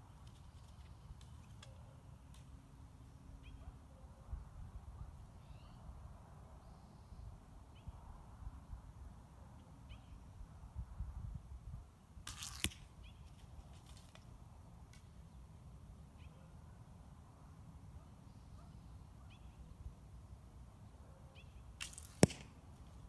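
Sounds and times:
faint bird chirps: 0:05.1 - 0:06.0, 0:06.6 - 0:08.1, 0:09.8 - 0:10.3, 0:16.1 - 0:16.6, 0:18.0 - 0:19.9
wind rumble on microphone: 0:10.3 - 0:11.9.

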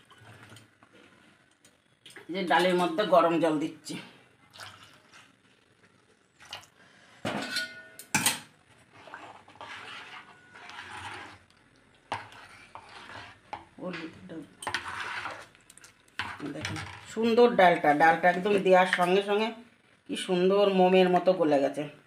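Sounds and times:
metal ladle scraping a pot: 0:08.9 - 0:11.5, 0:12.1 - 0:13.6, 0:14.6 - 0:15.6, 0:16.2 - 0:16.6.

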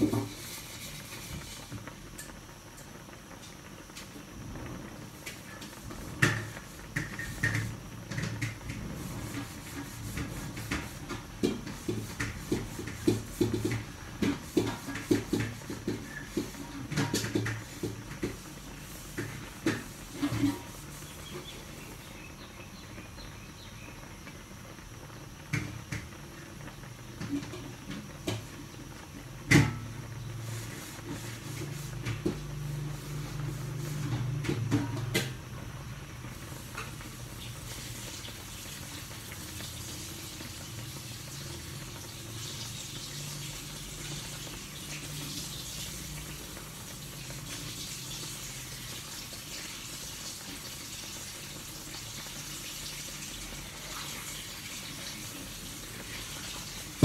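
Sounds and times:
water boiling in a wok: 0:00.0 - 0:57.0.

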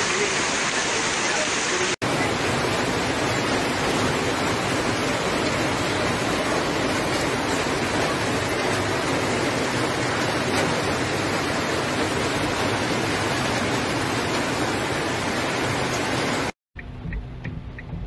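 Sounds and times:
floodwater rushing: 0:00.0 - 0:16.6.

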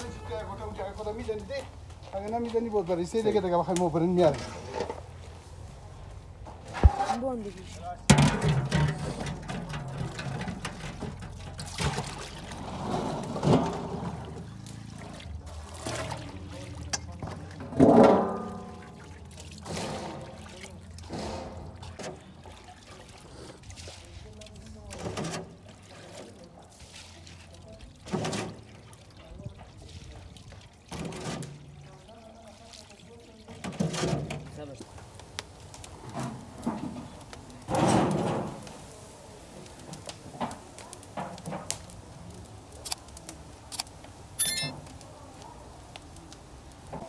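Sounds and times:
water trickling through colander: 0:07.2 - 0:37.3.

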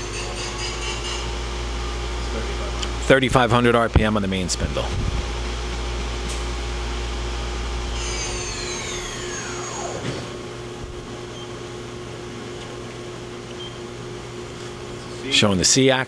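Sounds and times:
machine spindle rumble: 0:00.0 - 0:14.3
machine humming: 0:00.0 - 0:15.4
machine spindle winding down: 0:07.8 - 0:10.7.

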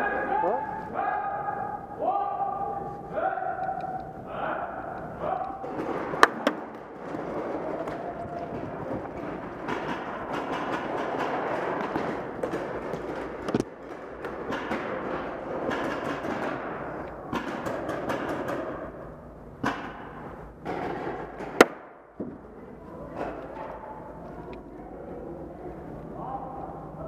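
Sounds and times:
sharp crack: 0:21.5 - 0:22.0.

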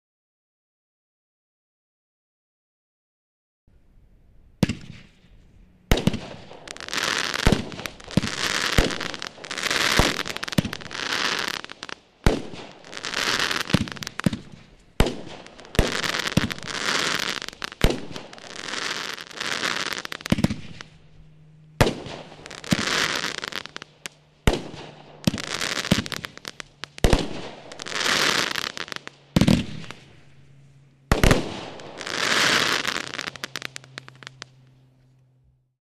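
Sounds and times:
firework crackle: 0:04.6 - 0:30.5, 0:31.1 - 0:34.7
firework shots: 0:04.6 - 0:34.6.

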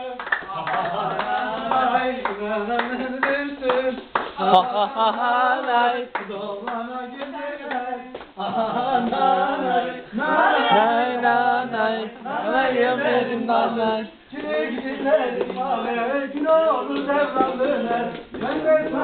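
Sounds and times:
hand claps: 0:00.0 - 0:08.4
people singing folk tune: 0:00.0 - 0:19.0.

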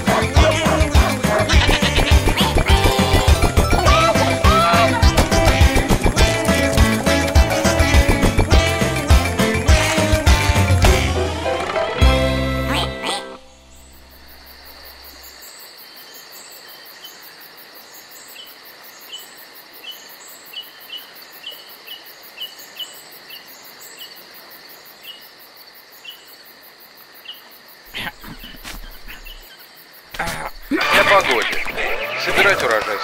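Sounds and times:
crickets chirping: 0:13.4 - 0:32.1.

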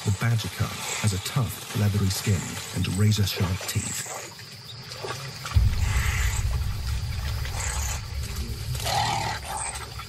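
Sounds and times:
animals growling: 0:07.0 - 0:10.0.

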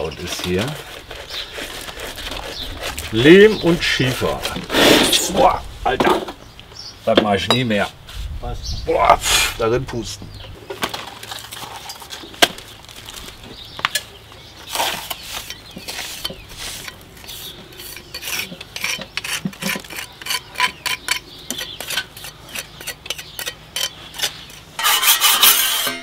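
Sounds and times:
trowel scraping mortar: 0:00.0 - 0:05.6, 0:13.9 - 0:26.0.

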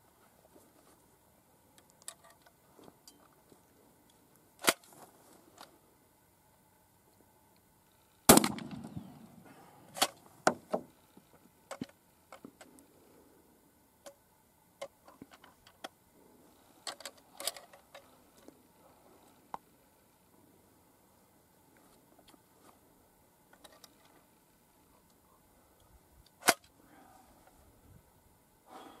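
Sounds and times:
shotgun shot with echo: 0:08.3 - 0:09.2.

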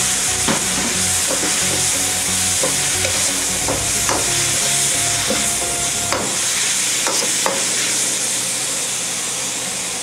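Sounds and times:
vegetables sizzling in a wok: 0:00.0 - 0:10.0.

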